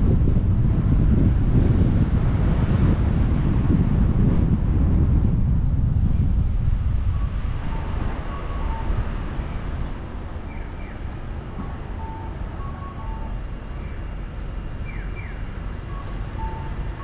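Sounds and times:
car engine rumble: 0.0s - 17.0s
road noise: 0.0s - 17.0s
crossing signal cuckoo call: 7.7s - 9.1s, 11.9s - 14.0s, 14.8s - 17.0s.

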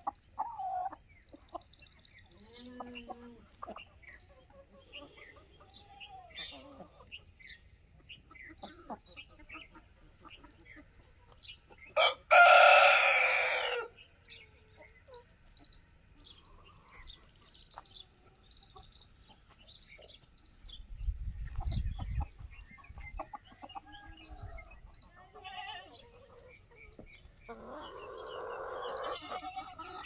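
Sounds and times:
rooster crowing: 12.0s - 13.9s.

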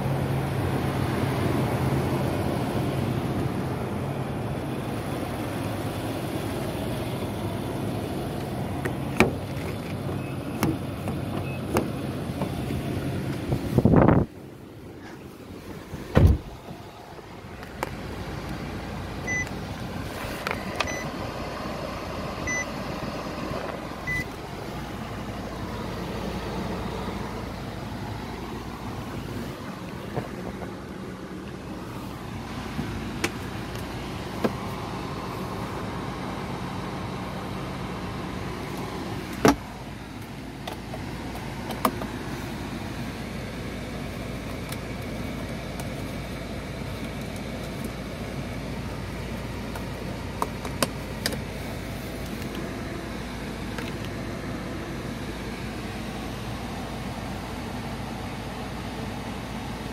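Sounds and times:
car engine idling hum: 0.0s - 59.9s
thump: 16.1s - 16.5s.

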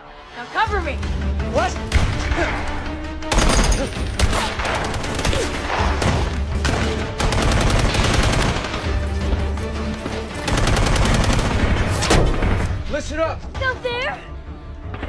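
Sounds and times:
film score music: 0.0s - 15.0s
rapid automatic gunfire: 4.2s - 6.0s, 6.6s - 8.9s, 10.5s - 11.8s.

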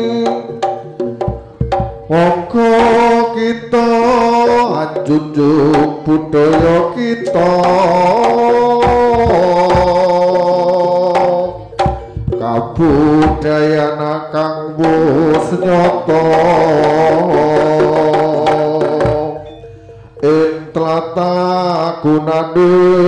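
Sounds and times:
hand drum strokes: 0.0s - 3.2s, 3.8s - 13.6s, 14.8s - 20.3s
wavering melodic line: 19.1s - 22.4s.

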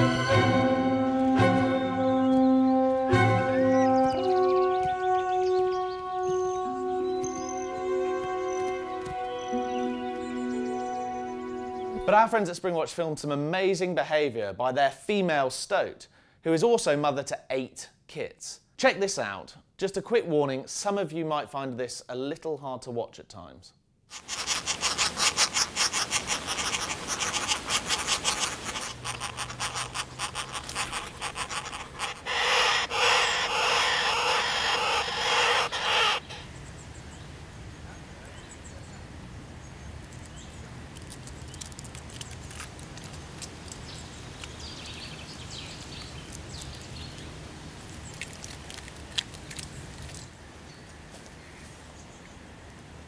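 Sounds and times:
nestlings chattering raspily: 24.1s - 36.6s
faint bird calls: 24.2s - 37.2s.

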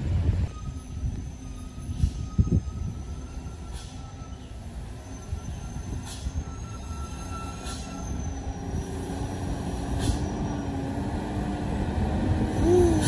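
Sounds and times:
truck engine rumble: 0.0s - 13.0s
high brake squeal: 0.5s - 10.8s.

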